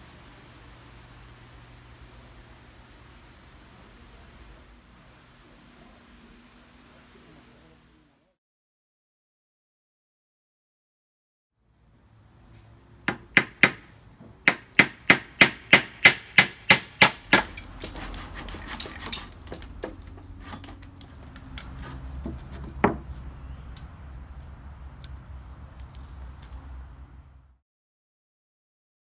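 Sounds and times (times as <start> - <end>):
hammer striking wood: 13.0 - 20.9, 22.2 - 23.1.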